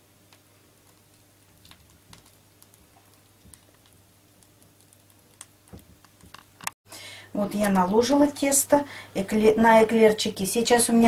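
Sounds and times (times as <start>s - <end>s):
dough squelching from piping bag: 0.7s - 6.3s.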